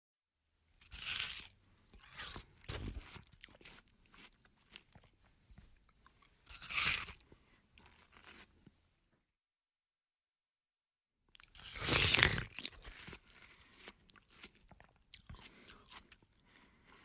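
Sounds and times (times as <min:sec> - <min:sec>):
biting into watermelon: 0:00.8 - 0:05.1, 0:06.5 - 0:07.2, 0:11.4 - 0:16.2
chewing: 0:00.9 - 0:05.2, 0:11.4 - 0:17.0.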